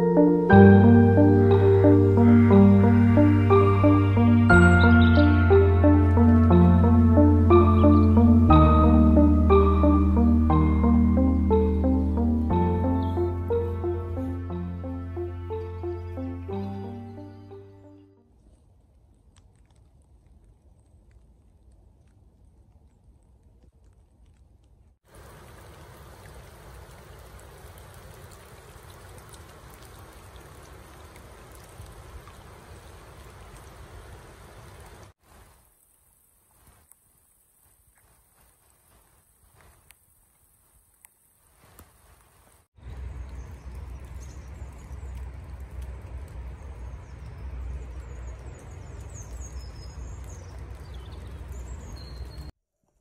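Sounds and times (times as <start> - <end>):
rain falling on river: 0.0 - 52.6
small birds chirping: 1.2 - 14.4, 15.2 - 18.1, 42.8 - 52.5.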